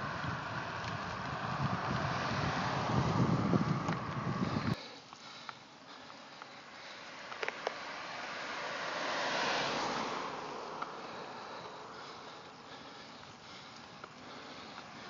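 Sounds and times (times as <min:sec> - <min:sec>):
car passing by: 0:00.0 - 0:04.8, 0:06.6 - 0:13.8.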